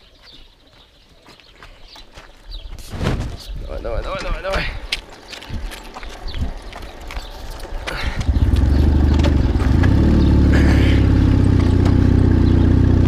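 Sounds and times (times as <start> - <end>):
pushed motorcycle clatter: 5.0 - 13.0
motorcycle engine running: 6.4 - 13.0.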